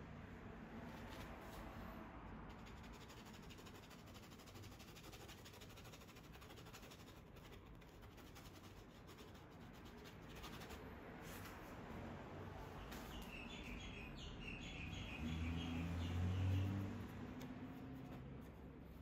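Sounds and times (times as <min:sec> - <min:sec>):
paintbrush scratching on canvas: 0:02.5 - 0:11.6.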